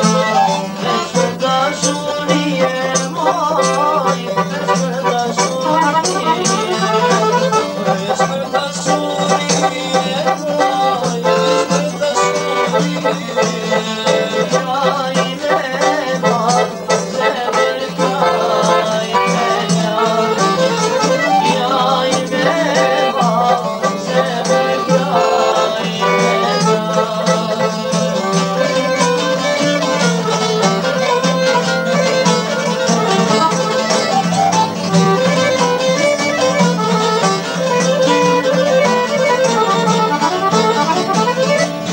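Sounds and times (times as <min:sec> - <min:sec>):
accordion: 0:00.0 - 0:41.9
plucked lutes: 0:00.0 - 0:41.9.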